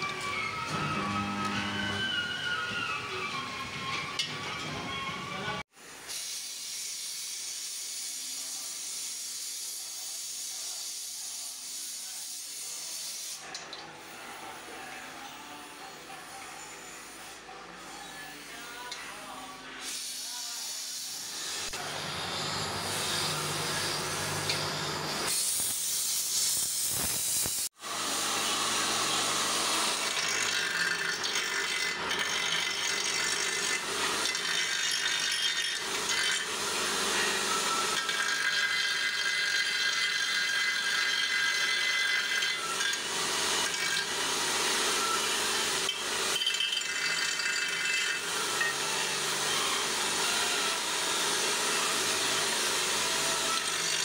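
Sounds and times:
power tool rasping: 27.9 - 54.0.

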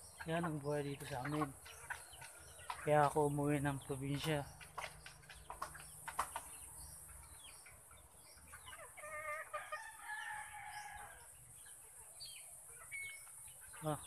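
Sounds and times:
rooster crowing: 9.2 - 11.3.

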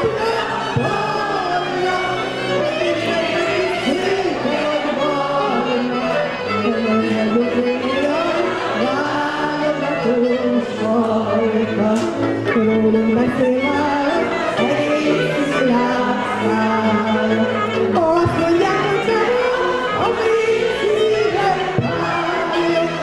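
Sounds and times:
violins: 0.0 - 23.0
woman singing into a microphone: 6.7 - 23.0
double bass: 15.6 - 20.2.

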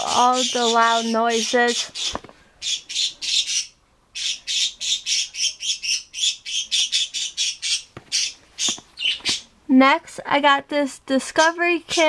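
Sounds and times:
bird squawking harshly: 0.1 - 9.5.

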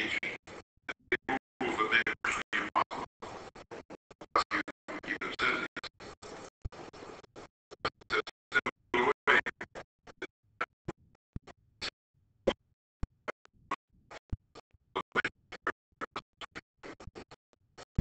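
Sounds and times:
man's voice broken into fragments: 0.9 - 3.4, 4.3 - 5.9.

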